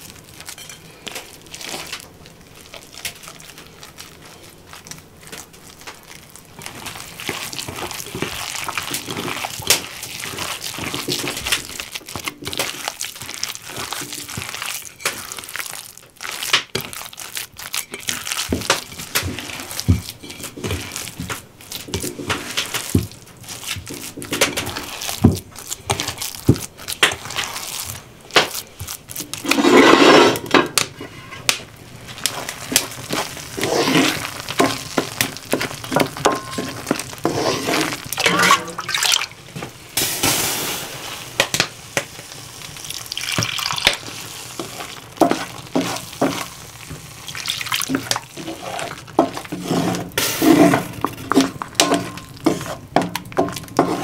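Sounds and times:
thick sauce being stirred: 0.0 - 40.1, 41.2 - 54.0
wooden spoon knocking a pan: 17.9 - 27.3, 32.7 - 37.3, 44.6 - 47.1, 49.1 - 54.0.

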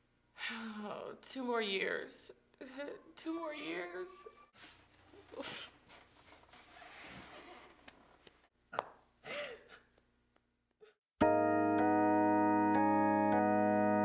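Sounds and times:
keyboard music sustained chords: 11.2 - 14.0.

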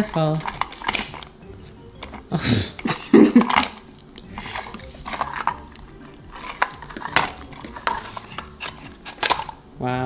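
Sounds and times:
blade snipping toy: 0.0 - 1.3.

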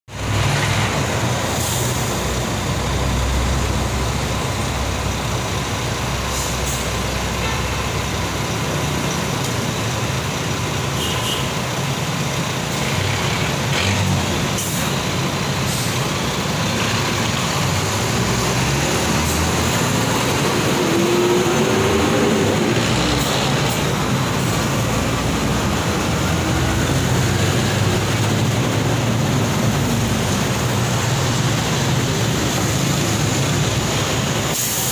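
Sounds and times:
traffic engines rumbling: 0.1 - 34.9
short high hisses: 34.5 - 34.9.

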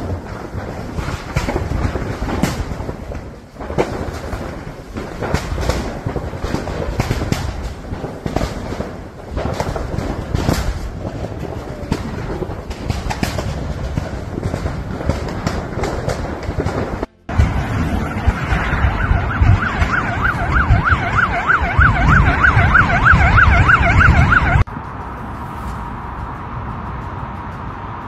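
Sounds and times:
fire rushing and crackling: 0.0 - 28.0.

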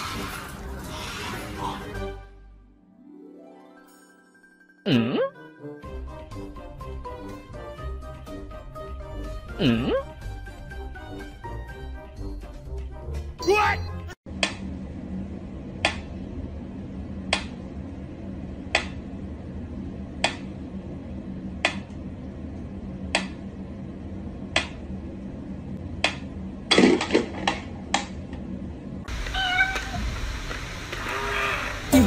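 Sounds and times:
low steady hum: 14.3 - 32.0.

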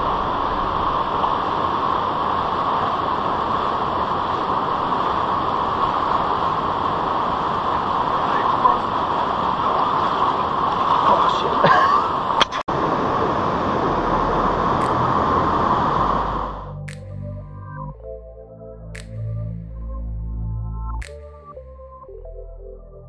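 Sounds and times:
river water rushing over stones: 0.0 - 16.6.

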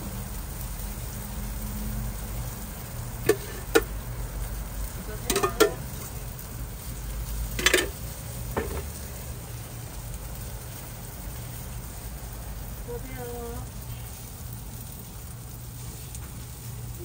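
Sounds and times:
food sizzling on a griddle: 0.0 - 17.0
metal utensils clinking: 3.2 - 3.9, 5.2 - 6.2, 7.5 - 8.0.

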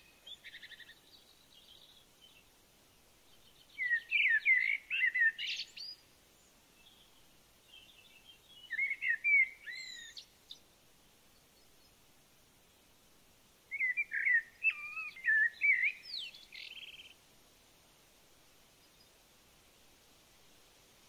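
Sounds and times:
songbird warbling: 0.0 - 2.4, 3.4 - 6.0, 7.7 - 10.6, 13.7 - 17.2
faint bird chirps: 0.0 - 10.7, 13.7 - 17.2, 18.7 - 19.2.

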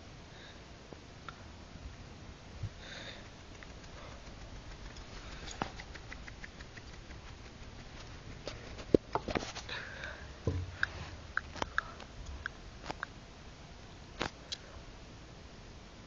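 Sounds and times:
dog sniffing and scratching: 3.4 - 9.7
sharp knocks: 10.5 - 10.9.

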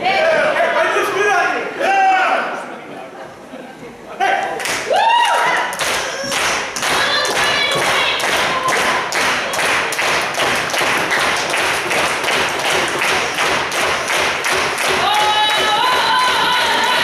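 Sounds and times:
crowd clapping in unison: 4.6 - 17.0.

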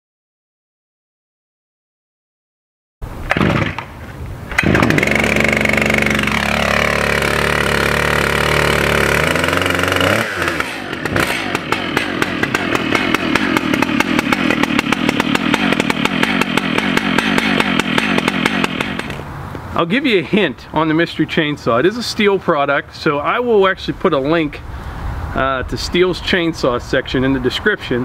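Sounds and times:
chainsaw idling chug: 3.3 - 3.8, 4.5 - 19.2
chainsaw engine high revs: 3.3 - 3.9, 4.5 - 19.3.

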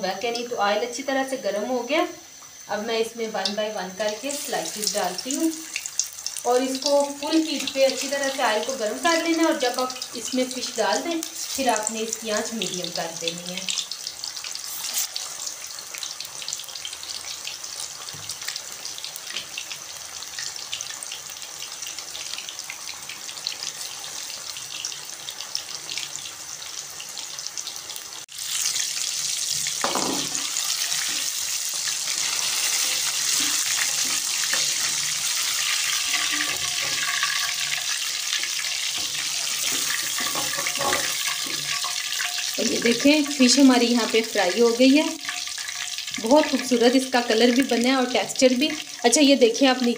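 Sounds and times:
fish deep-frying in oil: 0.0 - 49.9.

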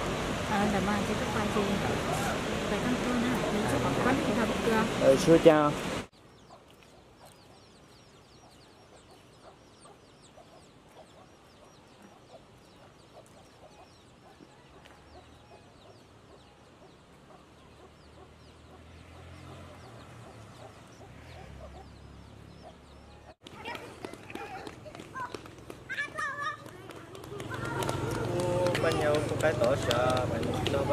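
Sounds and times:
chickens clucking: 6.4 - 25.4.

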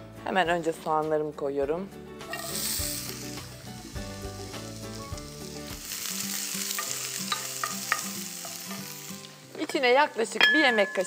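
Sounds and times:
onion sizzling in oil: 2.2 - 11.0.

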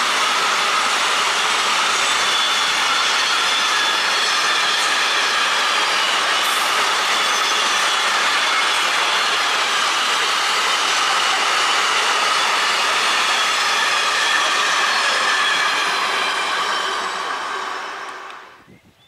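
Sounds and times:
train wheels on rails: 0.0 - 18.7.

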